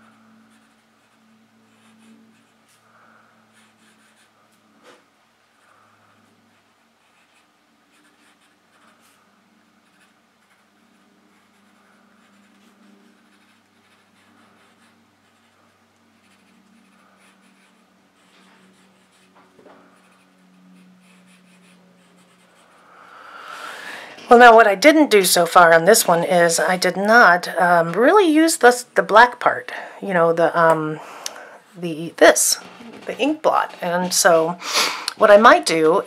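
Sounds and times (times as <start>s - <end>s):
low steady hum: 0.0s - 36.0s
pencil scratching on paper: 0.5s - 2.8s, 3.5s - 4.4s, 6.5s - 9.2s, 9.8s - 15.6s, 16.2s - 22.8s.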